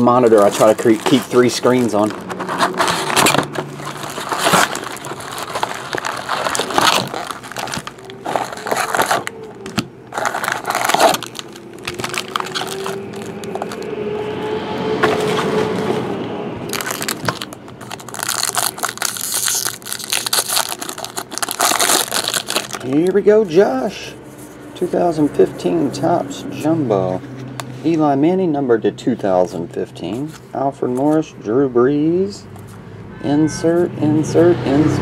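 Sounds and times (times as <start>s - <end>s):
foil packs rustling: 0.0s - 14.0s, 16.7s - 23.5s
plastic wrap crackling: 0.0s - 14.0s, 16.7s - 23.2s
pack tearing open: 0.4s - 13.9s, 16.7s - 23.0s.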